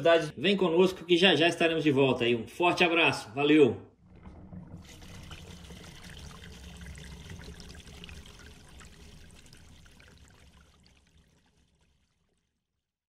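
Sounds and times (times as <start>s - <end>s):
water splashing and pouring: 3.9s - 12.9s.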